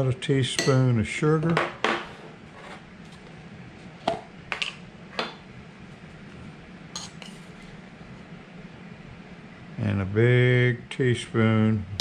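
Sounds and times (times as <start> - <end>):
metal teaspoon tapping: 7.0 - 7.3.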